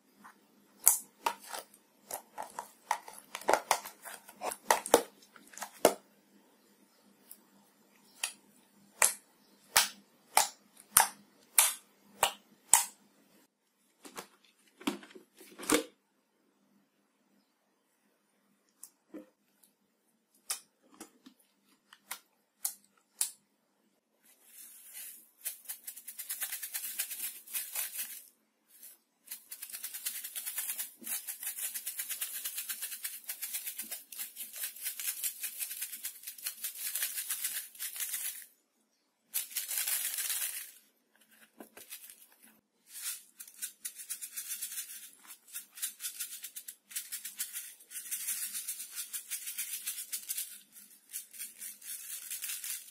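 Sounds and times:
beads rattling in container: 0:24.5 - 0:38.5, 0:39.3 - 0:40.9, 0:42.9 - 0:52.9.

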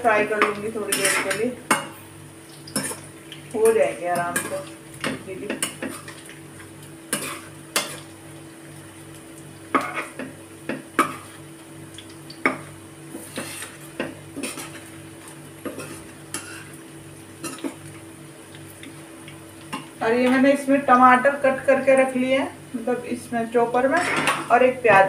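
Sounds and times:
oil sizzling: 0:00.0 - 0:25.0
spoon scraping against wok: 0:00.4 - 0:01.9, 0:13.2 - 0:14.8.

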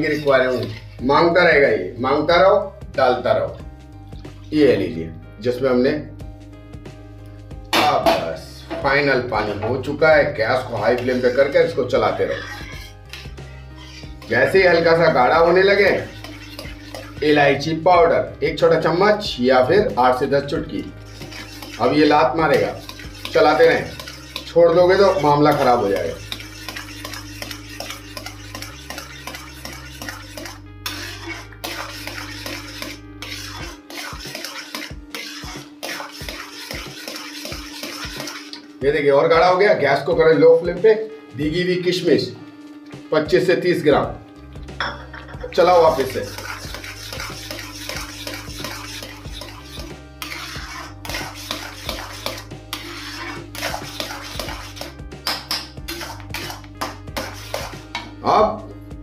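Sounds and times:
spoon scraping a pan: 0:00.0 - 0:01.0, 0:10.6 - 0:17.6, 0:20.7 - 0:38.8, 0:44.8 - 0:58.2
background music: 0:00.0 - 0:59.0.

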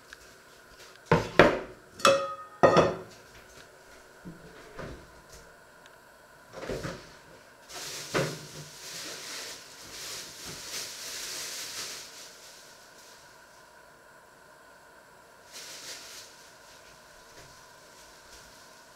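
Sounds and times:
kitchen knocks: 0:01.1 - 0:03.1.

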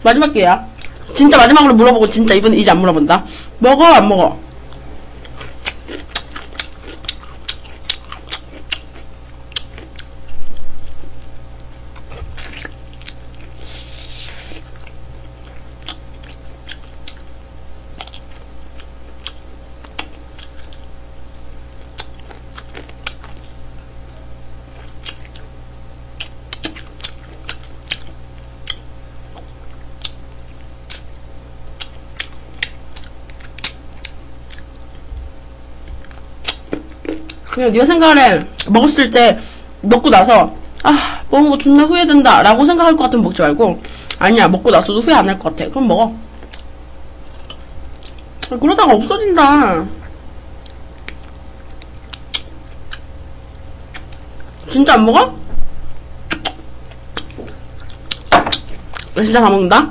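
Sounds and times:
steady low hum: 0:00.0 - 0:59.9
close chewing and mouth clicks: 0:04.5 - 0:35.0, 0:35.8 - 0:37.6, 0:46.3 - 0:48.6, 0:50.0 - 0:54.7, 0:55.9 - 0:59.2.

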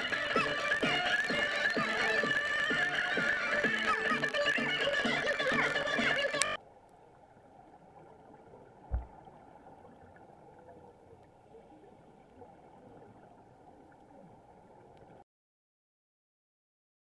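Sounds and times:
muffled underwater noise: 0:00.0 - 0:09.2, 0:10.0 - 0:15.2
low thump: 0:08.9 - 0:09.2.

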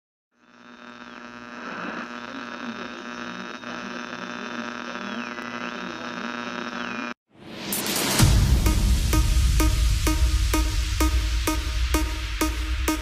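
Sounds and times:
electronic buzzing hum: 0:00.3 - 0:07.2.

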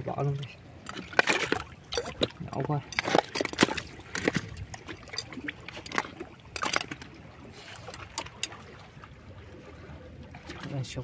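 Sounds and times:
faint water trickle: 0:00.0 - 0:01.0.

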